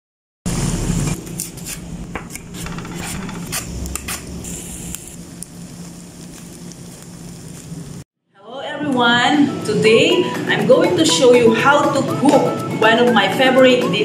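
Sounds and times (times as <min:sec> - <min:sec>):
crackles and pops: 0:03.8 - 0:08.0
oil sizzling in a pan: 0:04.1 - 0:08.1.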